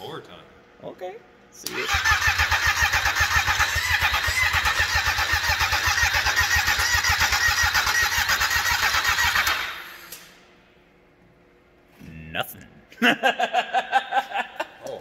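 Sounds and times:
snowmobile engine cranking: 1.8s - 9.8s.

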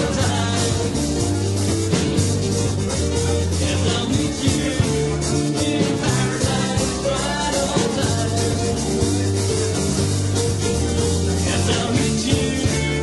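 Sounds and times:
person singing: 0.0s - 1.7s, 3.2s - 9.8s, 10.8s - 13.0s
bass line: 0.0s - 13.0s
live rock band playing: 0.0s - 13.0s
steady drumbeat: 0.0s - 13.0s.

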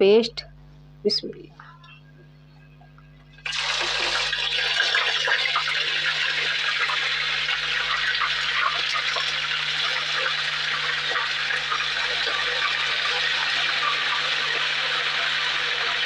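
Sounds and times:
paste sizzling in hot oil: 3.5s - 16.0s.

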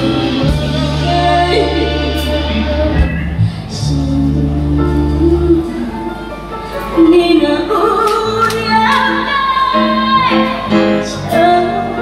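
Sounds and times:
backing music: 0.0s - 12.0s
girl singing into microphone: 6.9s - 12.0s.

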